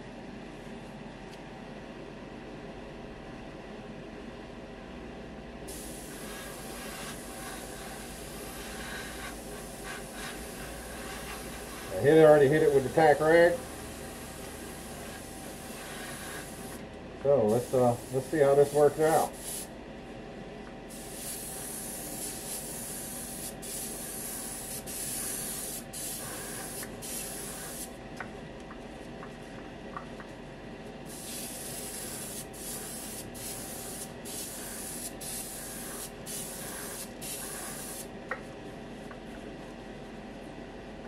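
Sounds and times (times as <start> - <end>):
steady hum: 0.0 - 41.0
airbrush spraying hiss: 5.7 - 16.8, 17.5 - 19.7, 20.9 - 27.9, 31.1 - 38.1.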